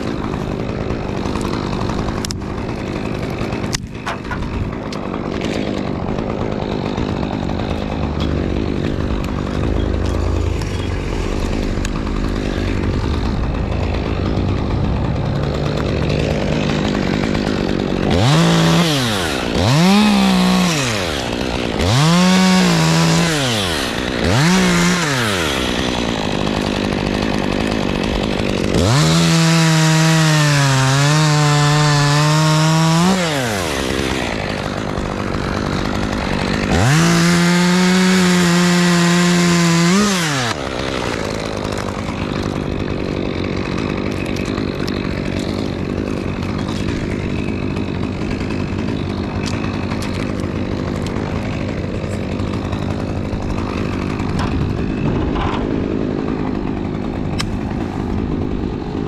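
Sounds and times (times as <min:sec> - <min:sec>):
chainsaw idling and revving: 0:00.0 - 0:59.0.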